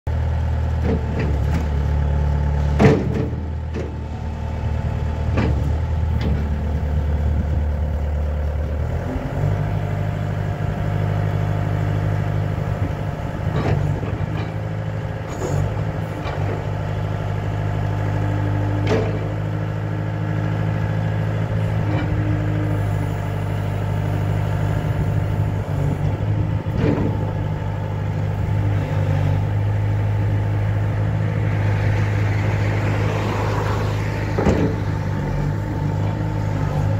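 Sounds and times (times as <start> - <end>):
diesel engine running: 0.1 - 36.9.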